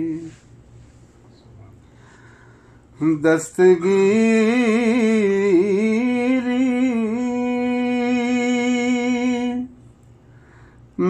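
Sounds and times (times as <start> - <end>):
person singing devotional song: 3.0 - 9.8.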